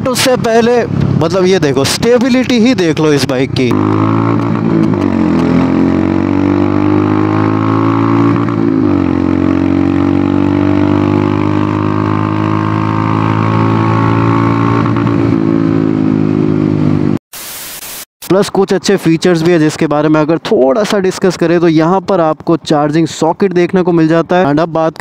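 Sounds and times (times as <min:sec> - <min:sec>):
motorcycle engine running: 0:00.0 - 0:17.2.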